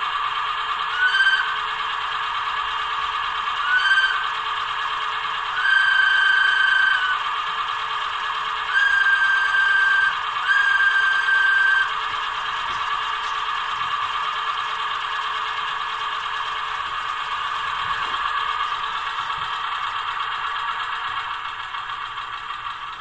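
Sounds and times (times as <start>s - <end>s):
small diesel engine chugging: 0.0s - 23.0s
high whistle tone: 0.9s - 1.6s, 3.6s - 4.3s, 5.5s - 7.3s, 8.7s - 12.0s.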